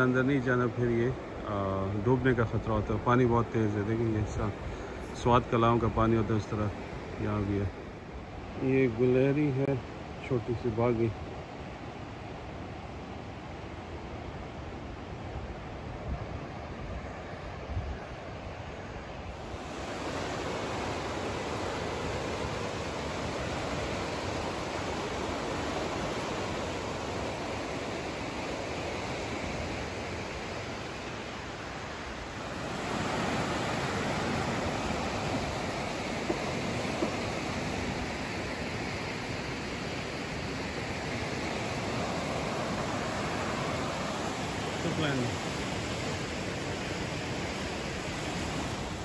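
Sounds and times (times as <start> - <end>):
river rapids rushing: 19.1 - 49.0.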